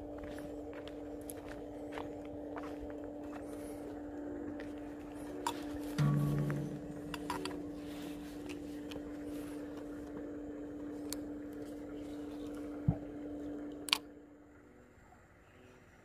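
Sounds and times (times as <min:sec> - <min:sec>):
steady low hum: 0:00.0 - 0:16.0
thump: 0:06.0 - 0:07.3.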